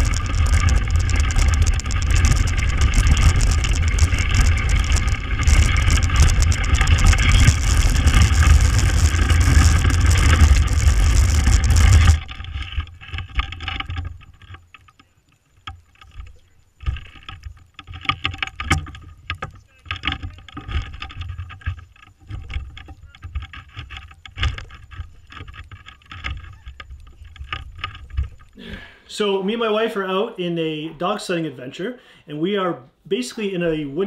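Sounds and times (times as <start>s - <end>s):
sled runners scraping over snow: 0.0s - 14.6s, 16.2s - 28.6s
scattered knocks and rustles: 0.0s - 28.6s.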